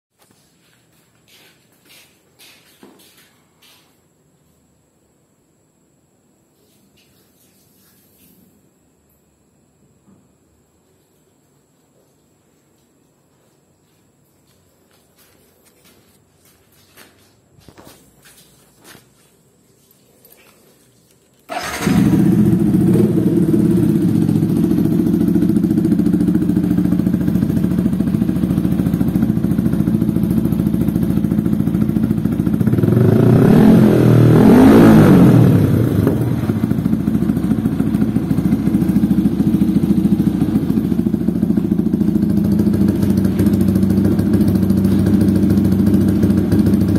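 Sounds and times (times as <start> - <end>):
motorcycle engine idling and revving: 21.5 - 46.9.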